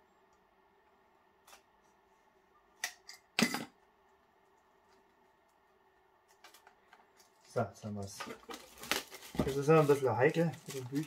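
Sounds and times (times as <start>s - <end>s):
plastic film crackling: 6.3s - 11.0s.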